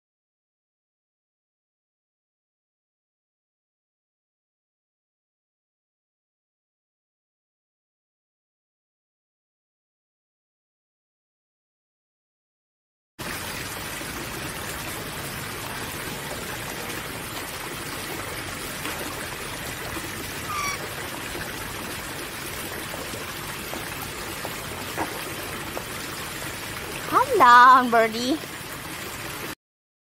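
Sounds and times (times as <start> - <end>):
running water hiss: 13.2 - 29.6
high bird chirp: 20.4 - 20.8.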